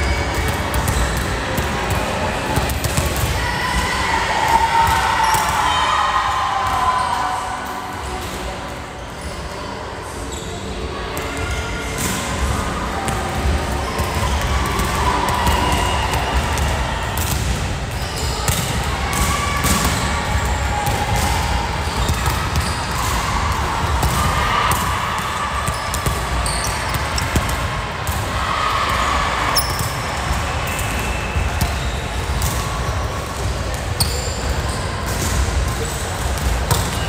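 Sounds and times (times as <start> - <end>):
volleyballs slapping and bouncing: 0.1 - 3.4, 12.0 - 37.0.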